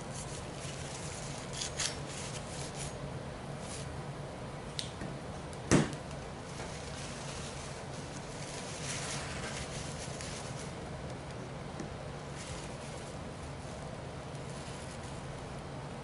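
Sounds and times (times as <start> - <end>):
faint room hum: 0.0 - 16.0
handling rustle: 0.1 - 3.0, 6.4 - 10.8, 12.2 - 15.3.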